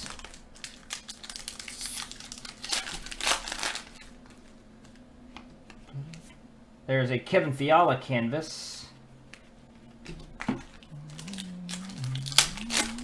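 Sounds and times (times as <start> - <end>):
foil wrapper crinkling and tearing: 0.0 - 4.2, 10.7 - 13.0.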